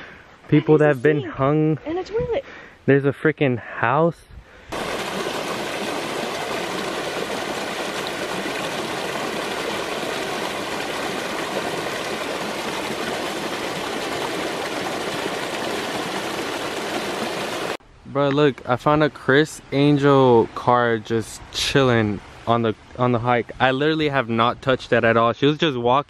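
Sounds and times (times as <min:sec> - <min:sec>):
creek rushing over rocks: 0:04.7 - 0:17.8.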